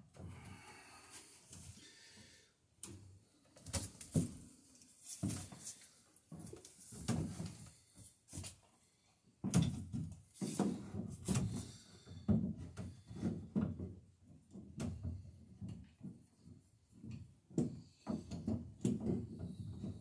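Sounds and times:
dull wooden knocks and thumps: 0:06.3 - 0:08.6, 0:09.4 - 0:20.0.

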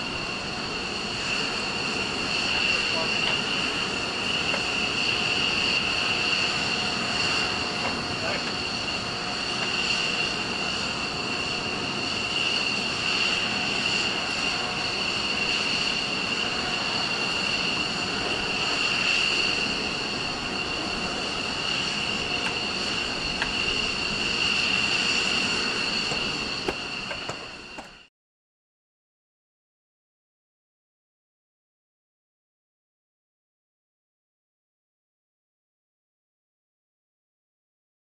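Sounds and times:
jet turbine whine and roar: 0:00.0 - 0:28.1.

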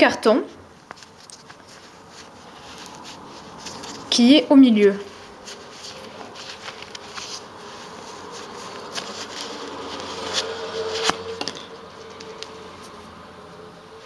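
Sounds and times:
cardboard scraping against yarn: 0:01.0 - 0:13.1.

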